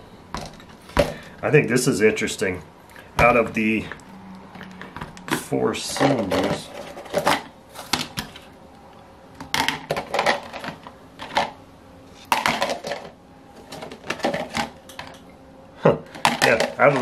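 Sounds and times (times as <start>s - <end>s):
plastic tubs and metal parts clicking: 4.6s - 8.5s, 9.4s - 11.6s, 12.2s - 15.3s, 16.0s - 17.0s.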